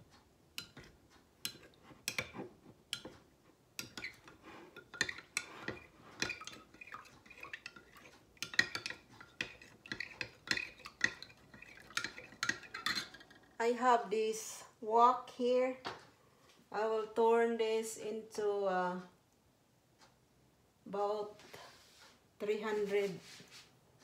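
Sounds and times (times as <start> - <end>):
spoon clinking against glass: 4.8 - 13.3.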